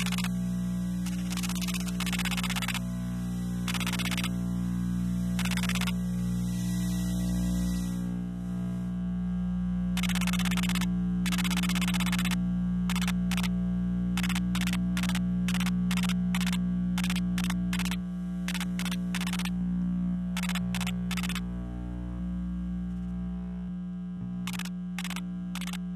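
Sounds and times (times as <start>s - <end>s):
buzzing hiss bursts: 0.0s - 8.9s, 10.0s - 13.5s, 14.2s - 19.6s, 20.3s - 21.5s, 24.4s - 25.9s
low electrical hum: 0.0s - 25.9s.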